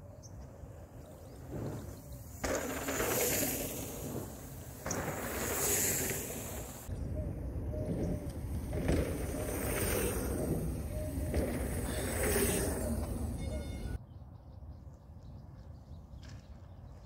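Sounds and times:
bike tyres rushing on dirt: 1.0s - 14.0s.

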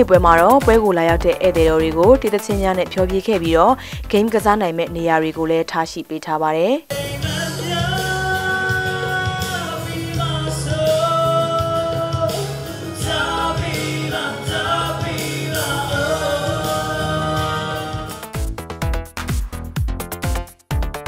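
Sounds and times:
pop backing track: 0.0s - 5.6s, 6.9s - 21.0s
person singing into a microphone: 6.9s - 18.3s.

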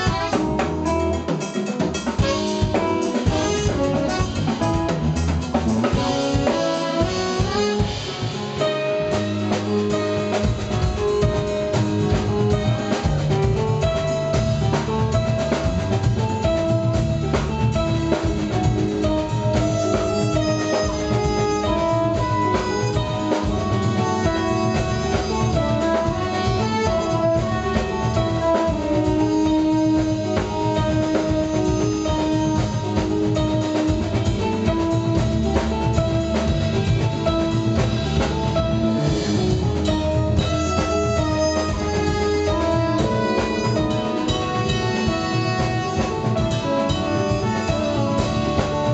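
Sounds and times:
trumpets: 0.0s - 15.4s, 19.1s - 37.9s, 39.6s - 48.9s
drum kit: 0.0s - 48.9s
electric bass: 0.0s - 48.9s
electric guitar: 0.0s - 48.9s
jazz-funk band playing: 0.0s - 48.9s
keyboards: 0.0s - 48.9s
saxophone: 0.0s - 48.9s
horn section sustained notes: 3.3s - 4.8s, 6.3s - 8.4s, 40.0s - 48.9s.

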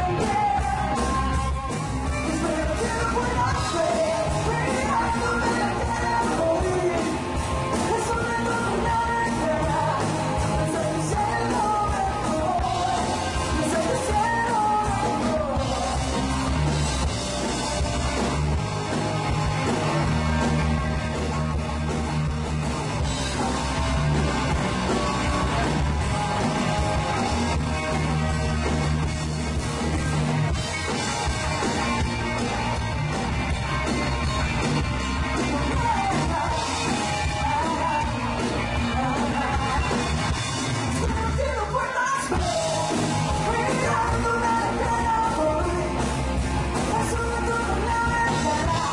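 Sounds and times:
person singing: 0.0s - 16.3s, 35.2s - 40.3s, 40.9s - 46.1s, 46.8s - 48.9s
live rock band playing: 0.0s - 48.9s.

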